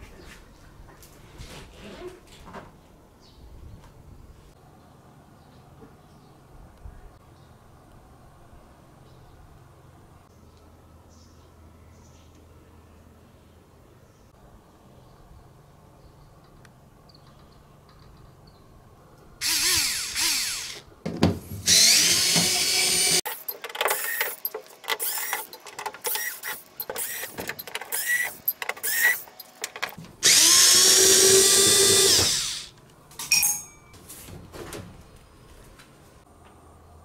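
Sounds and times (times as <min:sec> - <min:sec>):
electric screwdriver motor whirring: 0:19.4 - 0:20.8, 0:21.7 - 0:24.4, 0:25.0 - 0:25.5, 0:26.1 - 0:29.3, 0:30.2 - 0:32.7.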